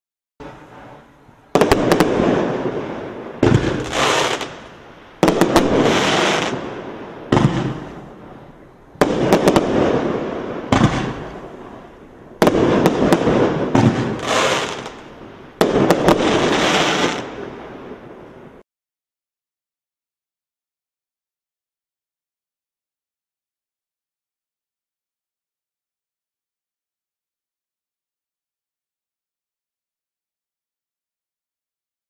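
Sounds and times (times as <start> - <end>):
firework launch cracks: 0.4 - 8.2, 9.0 - 11.8, 12.4 - 18.0
rushing hiss of fireworks: 0.4 - 18.6.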